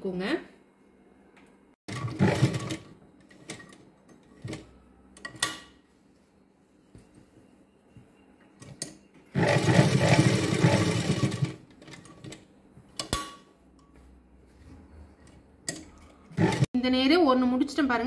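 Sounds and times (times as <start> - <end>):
sewing machine stitching: 1.9 - 3.8, 9.3 - 12.4, 16.3 - 16.7.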